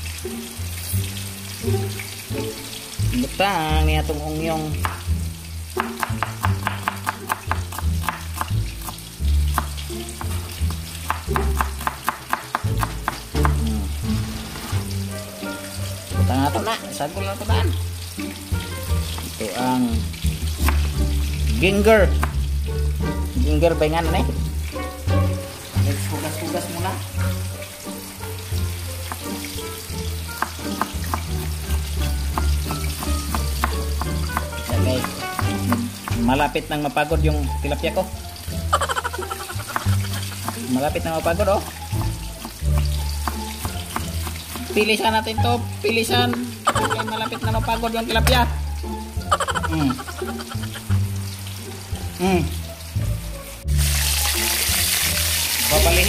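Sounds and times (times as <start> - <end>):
fish sizzling in oil: 0.0 - 56.0
knife tapping on chopping board: 4.8 - 5.1, 5.8 - 13.7, 22.1 - 22.4, 30.4 - 36.3, 38.8 - 40.7, 41.7 - 44.7, 45.9 - 47.0
knife knocking on cutting board: 5.8 - 8.5, 11.1 - 13.7, 22.2 - 22.4, 30.4 - 31.3, 38.8 - 40.6.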